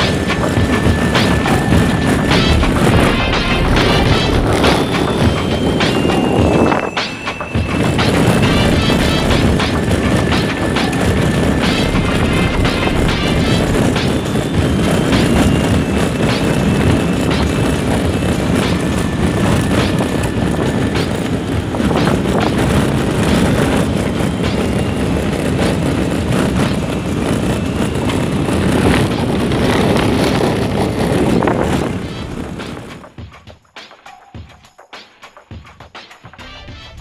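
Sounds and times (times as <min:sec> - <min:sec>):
car engine and tyre rumble: 0:00.0 - 0:33.2.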